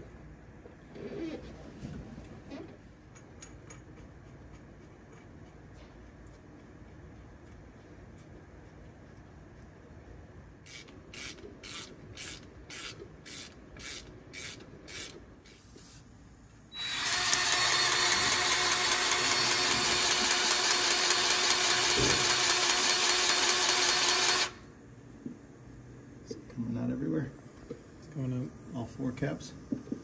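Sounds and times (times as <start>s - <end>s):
ratchet wrench clicking: 10.7s - 15.6s.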